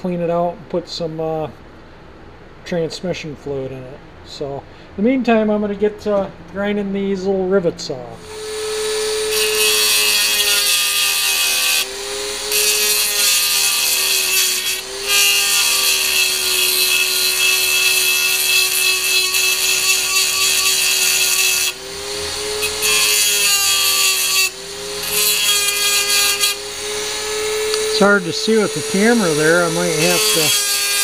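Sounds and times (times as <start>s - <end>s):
rotary tool grinding metal: 8.2s - 31.0s.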